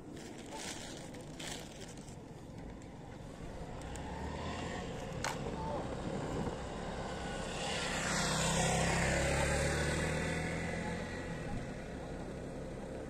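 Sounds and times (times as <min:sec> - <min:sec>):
motorcycle passing by: 0:03.6 - 0:13.0.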